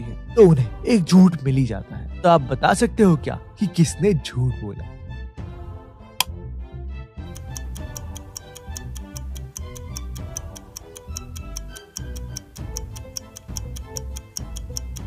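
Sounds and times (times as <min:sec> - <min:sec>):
clock ticking: 0:07.3 - 0:15.0.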